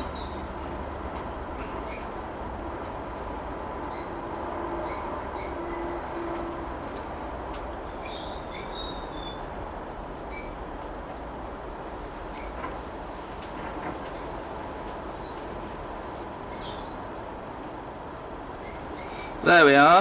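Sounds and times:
birds chirping: 0.0 - 0.5, 1.5 - 2.2, 3.9 - 4.2, 4.8 - 5.9, 7.8 - 9.5, 10.3 - 10.7, 12.3 - 12.6, 14.1 - 17.4, 18.6 - 20.0.

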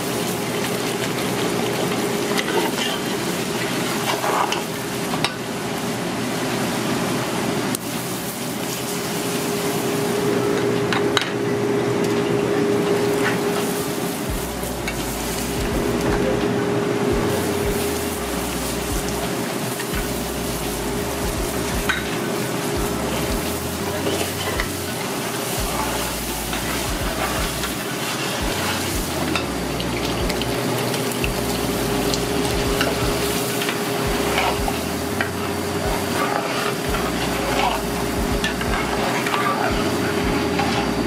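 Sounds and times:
oil sizzling in a pot: 0.0 - 11.2, 12.8 - 16.0, 17.2 - 41.0
steady hum: 9.3 - 41.0.

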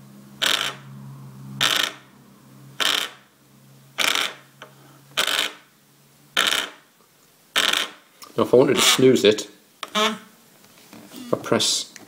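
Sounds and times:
vibration alarm rattling on table: 0.4 - 0.8, 1.6 - 2.0, 2.8 - 3.2, 4.0 - 4.4.

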